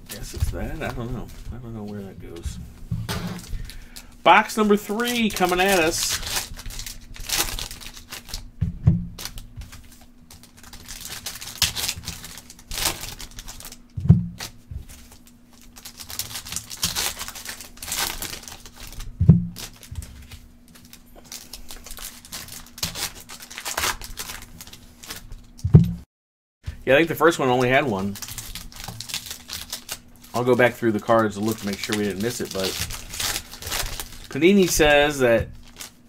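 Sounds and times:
foil wrappers crinkling: 0:00.0 - 0:02.5, 0:03.4 - 0:08.5, 0:09.2 - 0:25.6, 0:26.7 - 0:36.0
dull knocks: 0:08.6 - 0:09.2.

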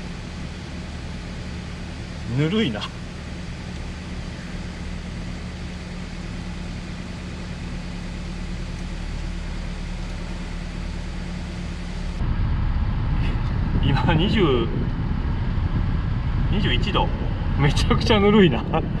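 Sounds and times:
air-conditioning blower hum: 0:00.0 - 0:19.0
car engine idling: 0:00.0 - 0:19.0
rush of air: 0:12.2 - 0:18.0.

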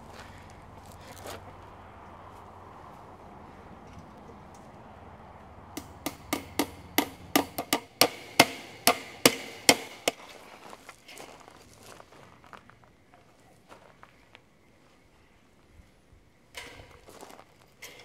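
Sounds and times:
hammer blows on staples: 0:05.8 - 0:10.2.

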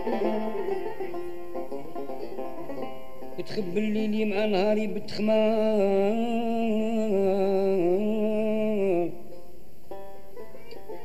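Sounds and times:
plucked strings melody: 0:00.0 - 0:04.4, 0:09.3 - 0:11.0.

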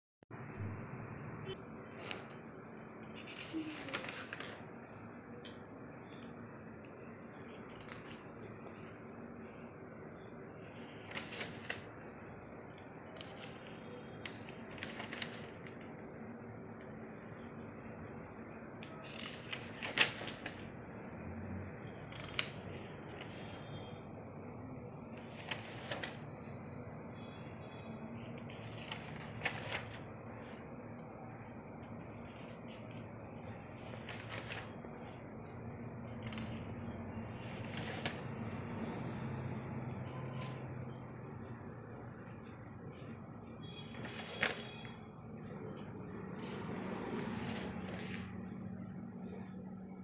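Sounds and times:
paper crackle: 0:01.9 - 0:05.6, 0:07.4 - 0:09.6, 0:10.6 - 0:12.2, 0:13.0 - 0:16.0, 0:18.8 - 0:20.7, 0:21.8 - 0:24.0, 0:25.1 - 0:26.7, 0:27.7 - 0:30.6, 0:31.4 - 0:40.7, 0:42.2 - 0:48.6
paper pages rustling: 0:01.9 - 0:05.6, 0:07.3 - 0:09.7, 0:10.6 - 0:12.2, 0:12.8 - 0:16.0, 0:18.8 - 0:21.1, 0:21.8 - 0:24.0, 0:25.0 - 0:26.7, 0:27.6 - 0:30.7, 0:31.4 - 0:48.7.

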